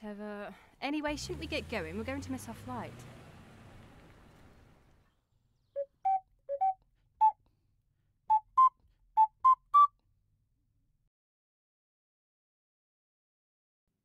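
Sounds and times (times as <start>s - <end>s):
whistle-like tune: 5.8s - 7.4s, 8.3s - 9.9s.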